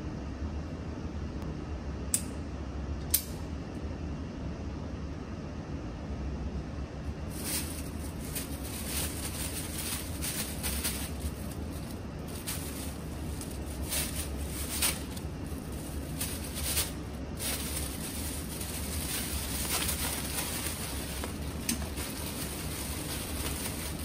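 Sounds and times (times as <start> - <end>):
steady low hum: 0.0 - 24.0
plastic bag crinkling: 7.3 - 24.0.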